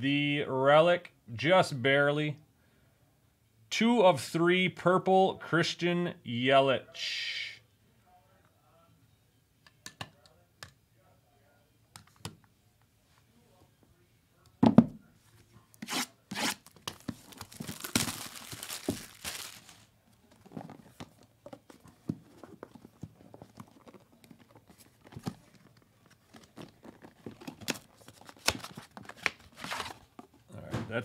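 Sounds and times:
packaging tearing: 15.8 - 19.9.

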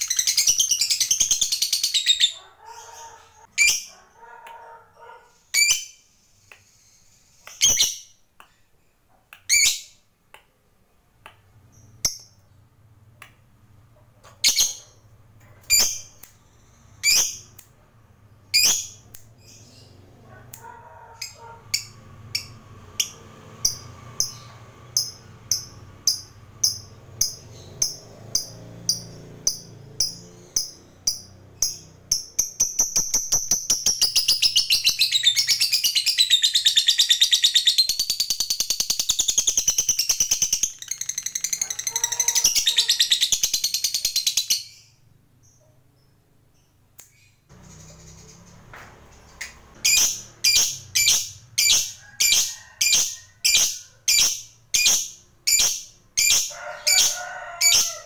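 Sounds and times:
bird high chirps: 0.0 - 10.0, 14.2 - 58.0
lovebird chattering trill: 49.4 - 57.1.

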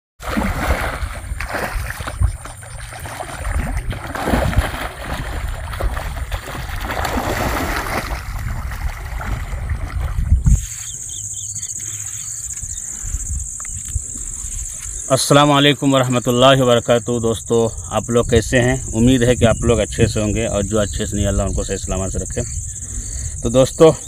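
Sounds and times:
fish splashing in water: 0.2 - 10.4.

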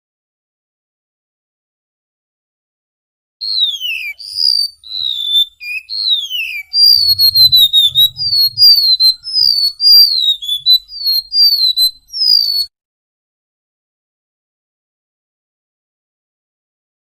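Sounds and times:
bird singing high whistled notes: 3.4 - 12.7.

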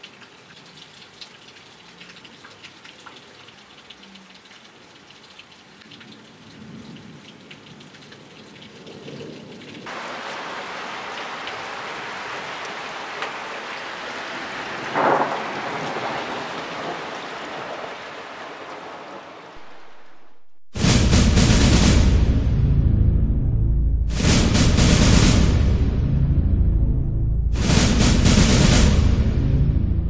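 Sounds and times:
rain hiss: 0.0 - 22.4, 24.1 - 26.0, 27.5 - 29.6
low rumbling thunder: 14.6 - 30.0
sharp close thunderclap: 14.8 - 18.0, 18.6 - 30.0.

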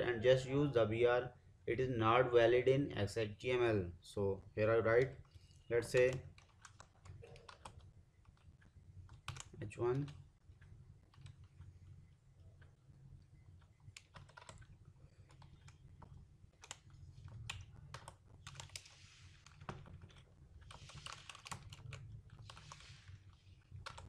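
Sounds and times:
computer keyboard typing: 5.1 - 11.7, 13.4 - 24.0.

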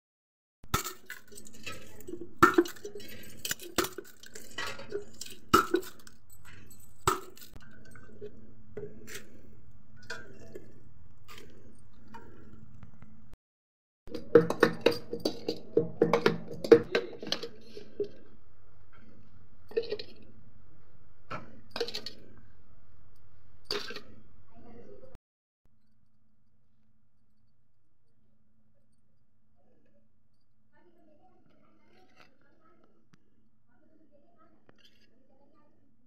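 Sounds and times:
bangles and steel bowl clinking: 0.8 - 8.3.

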